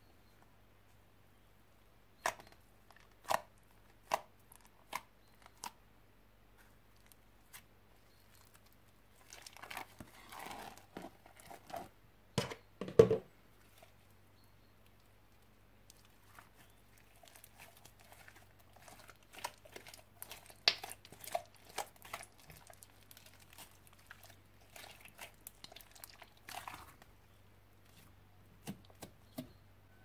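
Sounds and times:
slime crackling: 0:08.2 - 0:11.9, 0:15.9 - 0:27.0
slime popping: 0:17.1 - 0:26.9.

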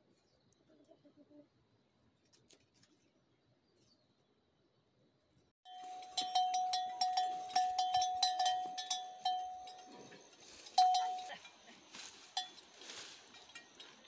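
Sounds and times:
metal livestock bell clanking: 0:05.7 - 0:14.0.

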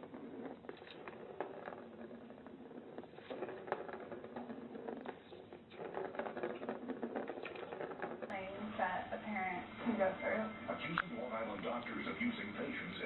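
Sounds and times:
plastic ball rattling around track: 0:00.0 - 0:08.3.

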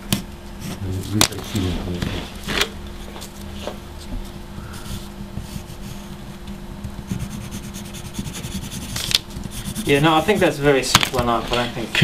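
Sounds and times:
low steady hum: 0:00.0 - 0:12.0
pencil scratching on paper: 0:04.6 - 0:06.2, 0:07.0 - 0:10.9.

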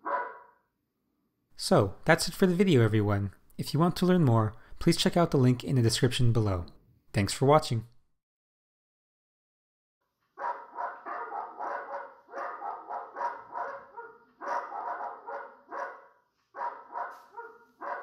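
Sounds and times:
dog barking through speaker: 0:00.0 - 0:00.6, 0:10.4 - 0:18.0.

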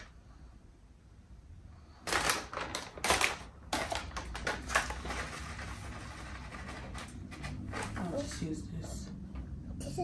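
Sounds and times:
plastic packaging crinkling: 0:01.9 - 0:08.0.

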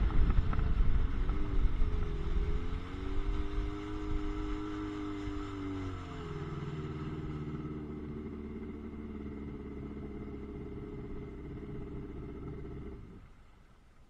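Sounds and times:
jet ski engine idling: 0:07.8 - 0:13.9.

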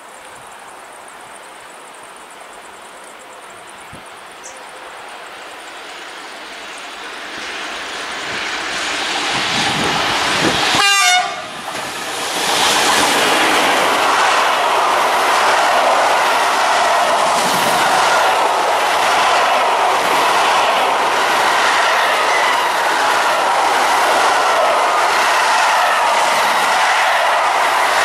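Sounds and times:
train wheels rumbling on rail: 0:03.6 - 0:28.0
locomotive horn blast: 0:10.7 - 0:11.6.

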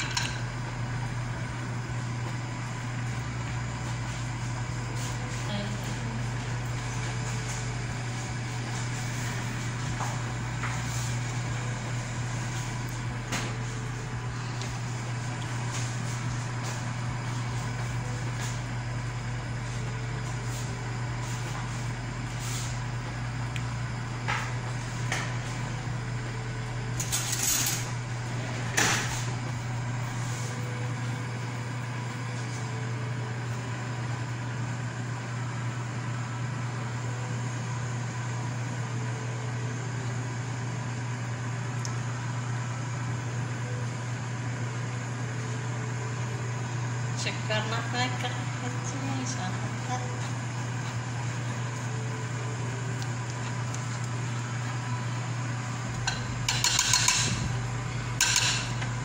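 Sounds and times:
low mechanical hum: 0:00.0 - 0:59.0
metal spoon knocking frying pan: 0:56.5 - 0:57.3.

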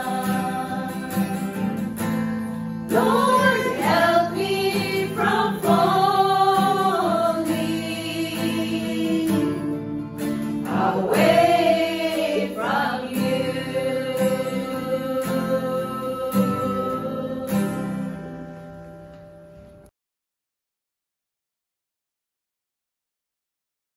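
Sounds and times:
women singing gospel song: 0:00.0 - 0:01.8, 0:02.9 - 0:09.7, 0:10.6 - 0:17.9
strummed acoustic guitar: 0:00.0 - 0:19.8.

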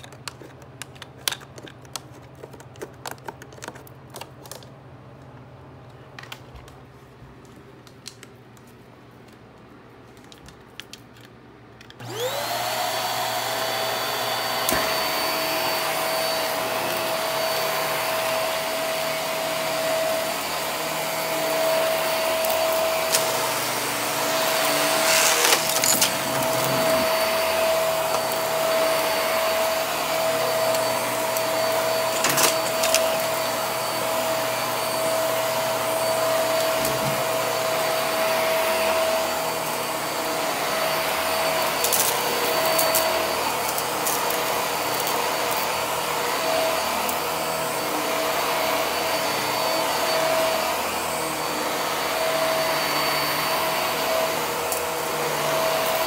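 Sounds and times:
vacuum cleaner motor whine: 0:11.9 - 0:56.0
debris rattling in vacuum: 0:23.0 - 0:27.5.

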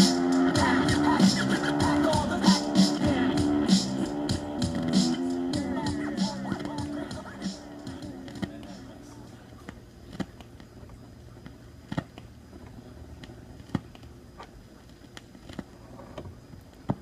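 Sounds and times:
low hum: 0:00.0 - 0:16.8.

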